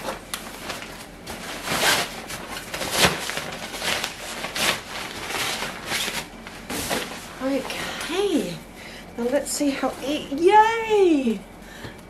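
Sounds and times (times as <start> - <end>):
nylon bag rustling: 0.0 - 8.6.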